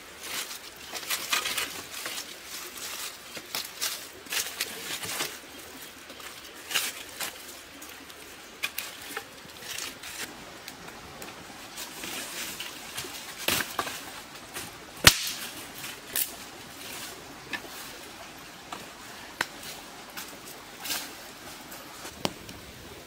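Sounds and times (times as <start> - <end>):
rustling of dry leaves: 0.0 - 23.0
dry sticks snapping: 14.6 - 16.4, 19.4 - 21.1.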